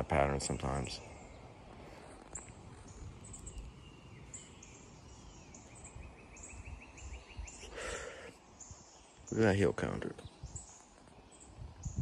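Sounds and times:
low background noise: 0.0 - 12.0
songbirds chirping: 0.0 - 12.0.

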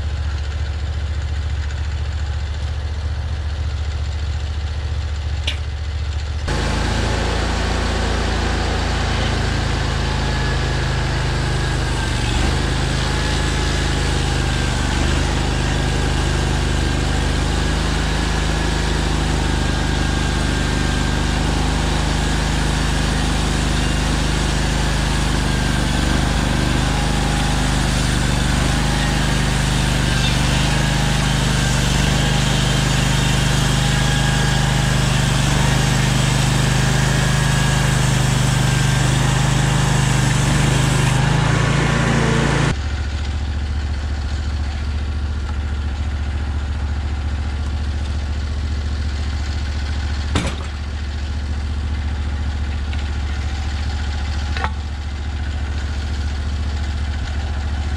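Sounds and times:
small gas engine running: 0.0 - 57.9
band blade cutting log: 6.5 - 42.8.

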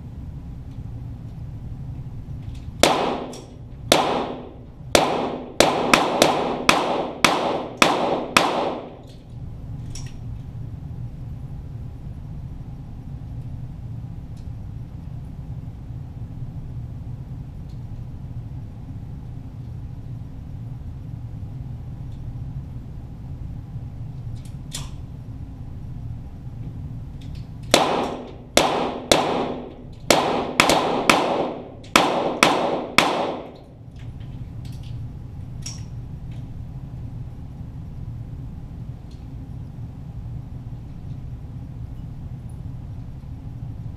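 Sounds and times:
low hum: 0.0 - 43.9
pistol shots with echo: 2.8 - 9.0, 27.7 - 33.7.

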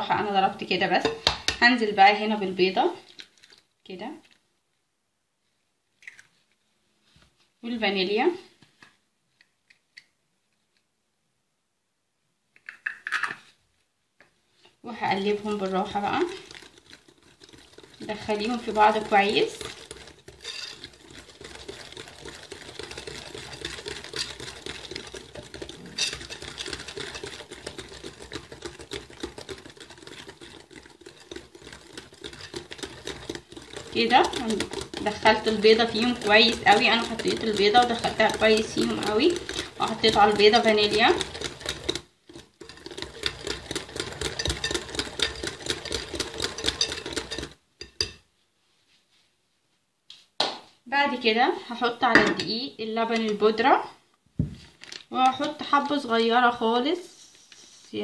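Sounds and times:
whisk clicking against bowl: 1.0 - 2.3, 15.1 - 48.2
wet batter slapping: 1.2 - 1.7, 2.9 - 4.4, 15.0 - 48.0.

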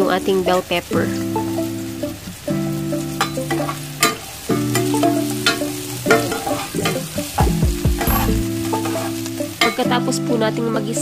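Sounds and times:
steady held tones: 0.0 - 9.4
vegetables sizzling in pan: 0.0 - 11.0
spatula scraping pan: 3.1 - 9.9.

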